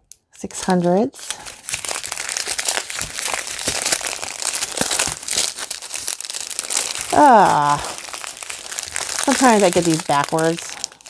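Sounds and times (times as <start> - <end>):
plastic bags crinkling: 0.6 - 11.0
person making falling vocal sound: 7.1 - 8.0.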